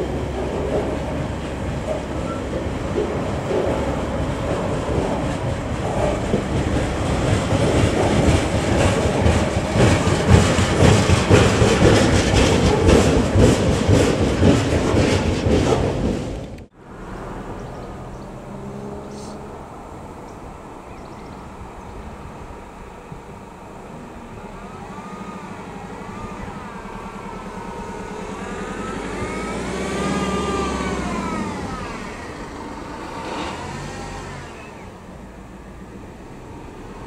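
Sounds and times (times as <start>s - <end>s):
diesel locomotive engine: 0.0s - 37.0s
high wavering whine: 16.8s - 35.7s.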